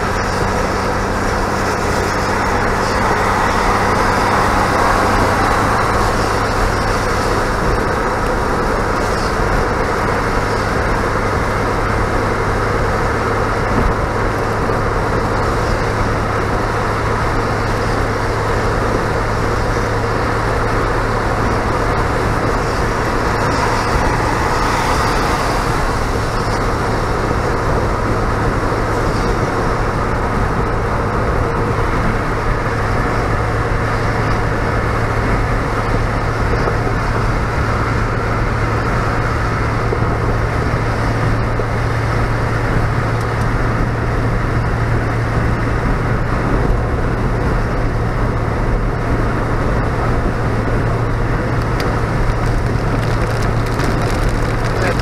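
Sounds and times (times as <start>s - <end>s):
low engine drone: 0.0s - 55.0s
tyres hissing on wet road: 0.0s - 55.0s.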